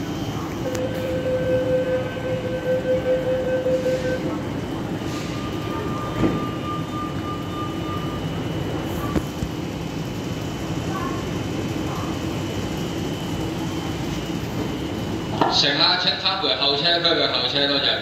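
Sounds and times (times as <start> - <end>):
train rumble pulling away: 0.0 - 15.4
higher tone: 0.6 - 4.4
steady high tone: 0.6 - 9.1.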